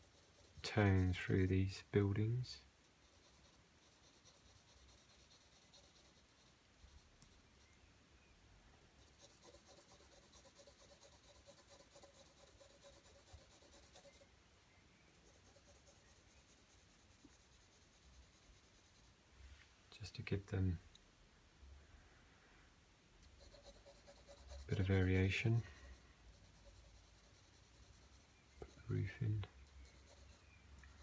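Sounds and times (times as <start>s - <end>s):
pencil scratching on paper: 0.0s - 1.5s, 2.8s - 7.4s, 9.0s - 14.2s, 15.2s - 19.1s, 23.3s - 31.0s.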